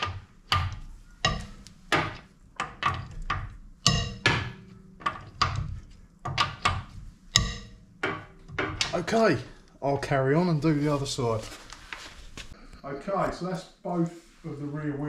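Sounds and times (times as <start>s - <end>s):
metallic knocks and clicks: 0.0s - 9.3s.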